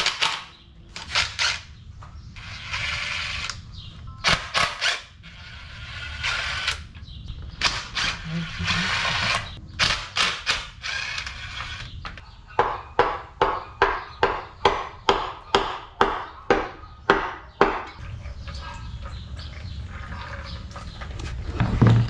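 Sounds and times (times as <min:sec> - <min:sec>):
cordless drill whirring: 0:07.6 - 0:09.6, 0:10.8 - 0:11.9.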